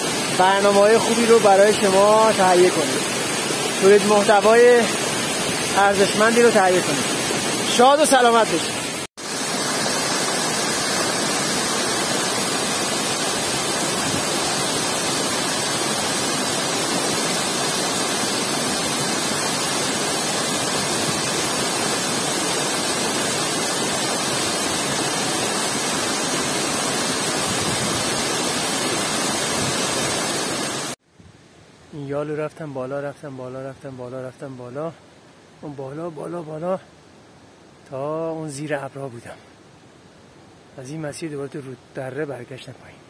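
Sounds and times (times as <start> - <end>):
waterfall rushing: 0.0 - 31.0.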